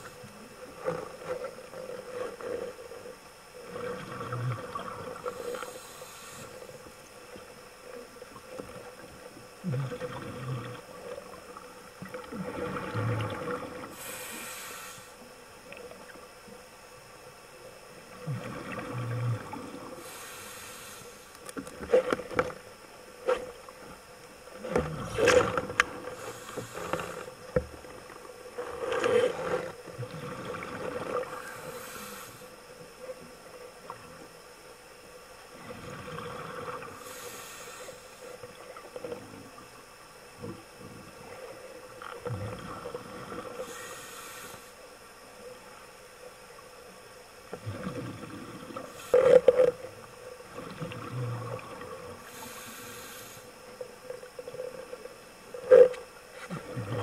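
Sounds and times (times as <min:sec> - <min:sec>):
faint hum: 0:00.0 - 0:57.0
bubbles gurgling: 0:03.6 - 0:05.4, 0:09.6 - 0:11.1, 0:12.0 - 0:13.9, 0:18.1 - 0:19.9, 0:28.9 - 0:31.4, 0:47.6 - 0:49.0, 0:50.4 - 0:52.2, 0:56.5 - 0:57.0
diver breathing hiss: 0:05.2 - 0:06.9, 0:13.8 - 0:15.3, 0:19.9 - 0:21.3, 0:26.0 - 0:27.3, 0:31.2 - 0:32.6, 0:36.4 - 0:38.4, 0:43.4 - 0:44.8, 0:48.8 - 0:49.6, 0:52.2 - 0:53.7.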